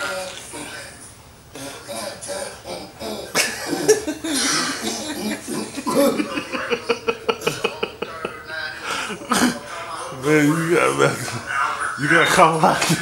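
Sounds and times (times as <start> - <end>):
man laughing: 1.9 - 9.6.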